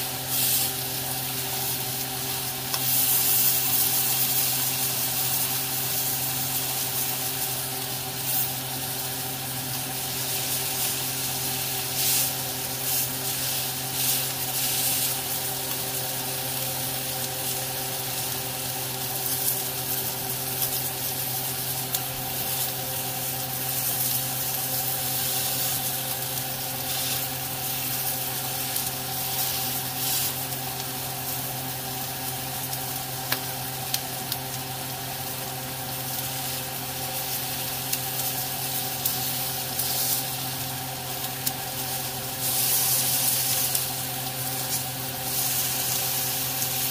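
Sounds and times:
steaks sizzling in a pan: 0.0 - 46.9.

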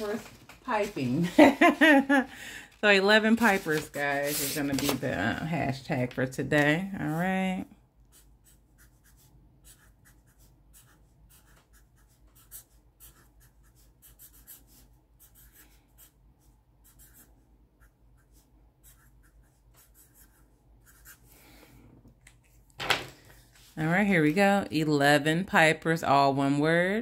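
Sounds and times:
marker writing on paper: 8.1 - 21.3.

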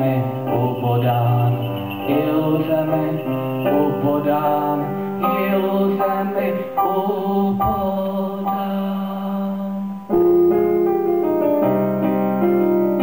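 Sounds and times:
man singing: 0.0 - 10.2
electronic keyboard chords: 0.0 - 13.0.

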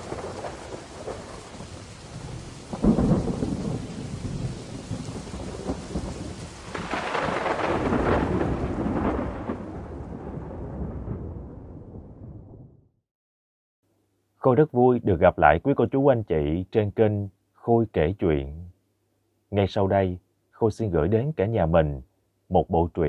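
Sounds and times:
steady rain: 0.0 - 11.8
rolling thunder rumble: 0.0 - 12.9
thunderclap: 0.0 - 12.9.

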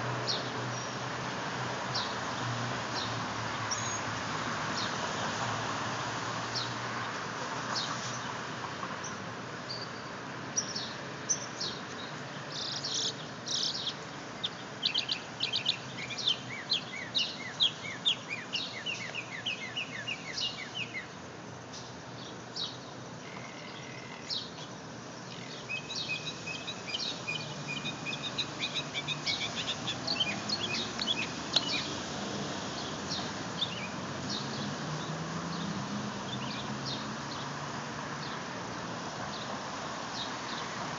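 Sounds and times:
mockingbird singing: 12.6 - 21.1, 25.3 - 31.9.

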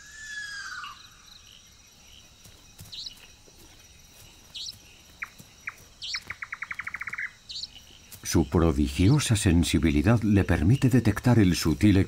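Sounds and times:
rapid clicking calls: 4.6 - 8.3.

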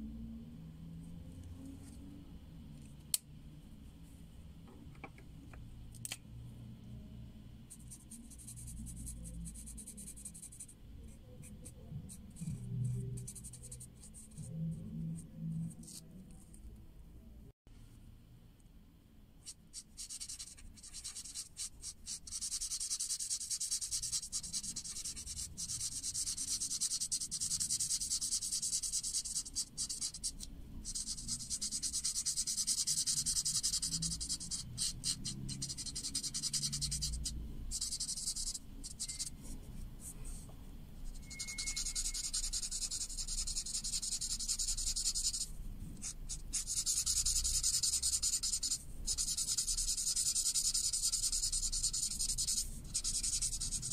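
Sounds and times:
marker scratching on paper: 7.7 - 16.1, 19.4 - 53.9.

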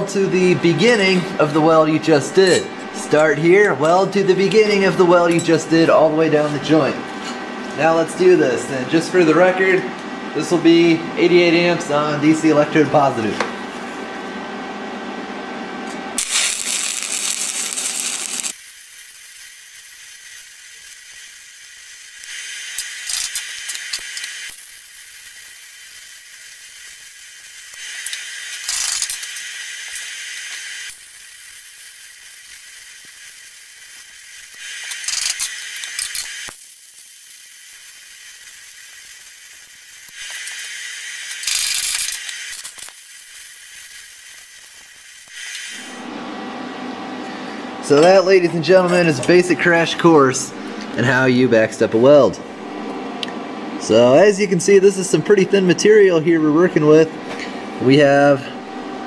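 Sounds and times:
welding arc crackling and hissing: 16.1 - 46.1.

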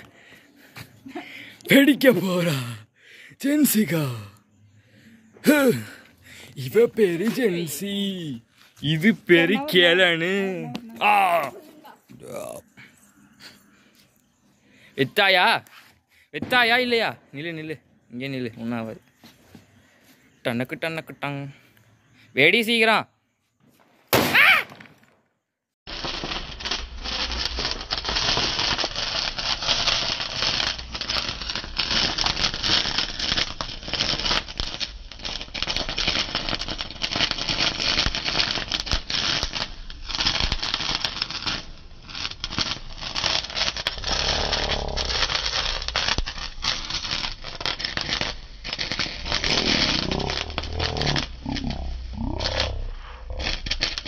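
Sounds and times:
sparkler crackling and fizzing: 3.4 - 4.3, 5.4 - 6.0, 6.6 - 12.6, 25.9 - 54.0.

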